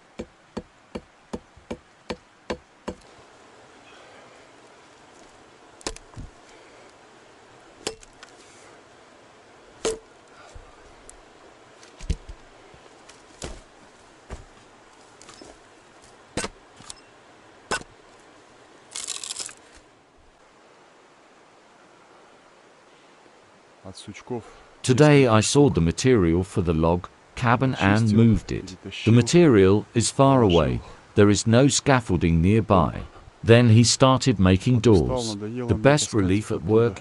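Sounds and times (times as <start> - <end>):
crackling rustle: 3.0 - 9.0, 9.6 - 20.5.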